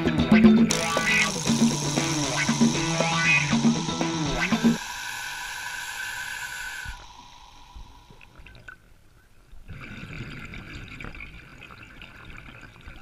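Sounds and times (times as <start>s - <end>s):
background music: 0.0s - 4.9s.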